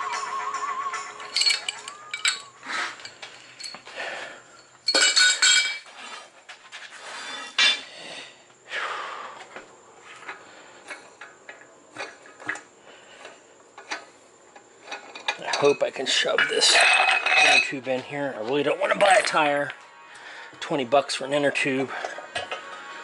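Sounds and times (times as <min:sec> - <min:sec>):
steel tools clinking on wheel rim: 0:01.2 - 0:03.9, 0:04.5 - 0:06.1, 0:13.2 - 0:18.1.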